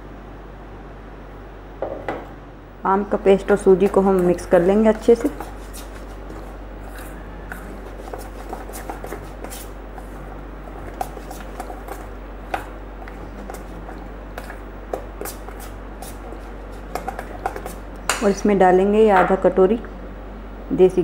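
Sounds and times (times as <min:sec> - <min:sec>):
steady low hum: 0:00.0 - 0:21.0
spoon stirring thick batter: 0:03.4 - 0:18.4.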